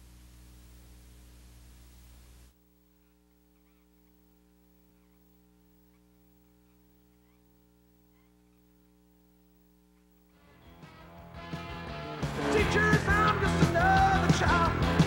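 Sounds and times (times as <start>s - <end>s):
faint electrical hum: 0.0s - 11.3s.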